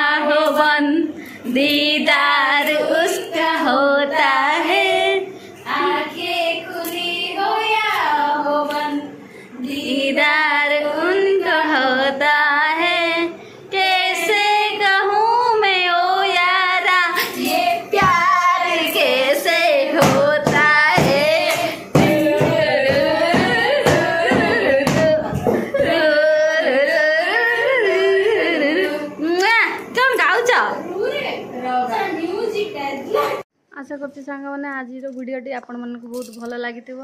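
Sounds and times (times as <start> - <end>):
women singing without instruments: 0.0 - 29.5
sharp claps keeping time: 20.0 - 26.0.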